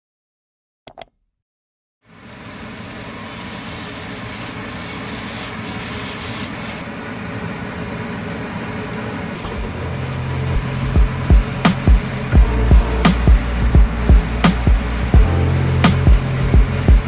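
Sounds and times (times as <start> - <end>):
low musical beat: 10.4 - 17.0.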